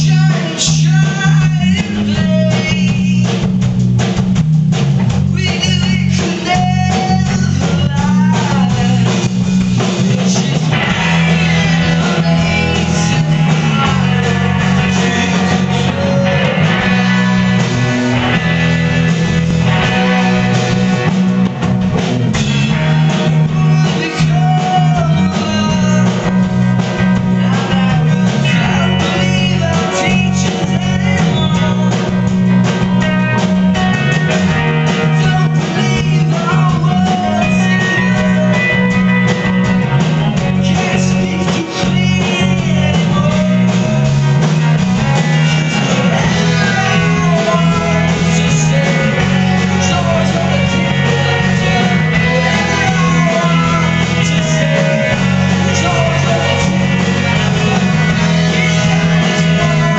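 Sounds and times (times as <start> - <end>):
man singing: 0.0 - 3.6, 5.2 - 21.1, 22.4 - 59.9
live rock band: 0.0 - 59.9.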